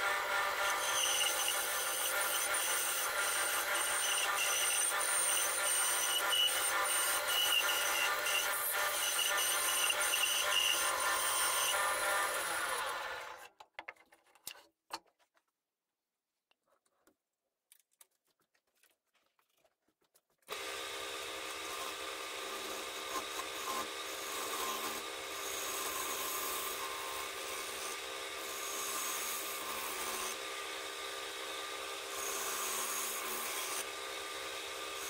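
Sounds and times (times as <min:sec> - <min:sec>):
bandsaw whining: 0:00.0 - 0:13.5.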